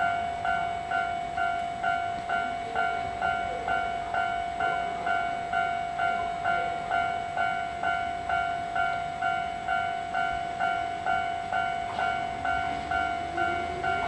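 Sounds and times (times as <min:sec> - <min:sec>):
level crossing warning bell: 0:00.0 - 0:14.0.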